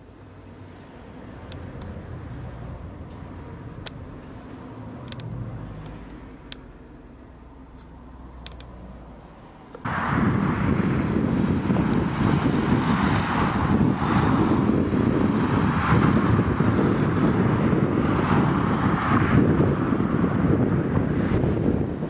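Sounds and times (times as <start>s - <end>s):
wind buffeting microphone: 9.8s - 22.0s.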